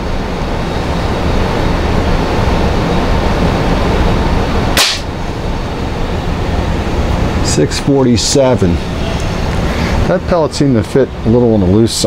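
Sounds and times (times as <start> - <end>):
heater blowing with low hum: 0.0 - 12.0
air rifle shot: 4.8 - 5.1.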